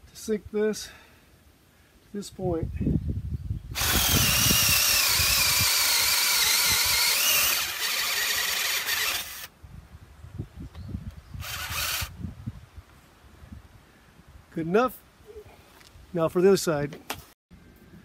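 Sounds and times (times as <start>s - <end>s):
cordless drill boring into wood: 3.8s - 9.5s, 11.4s - 12.1s.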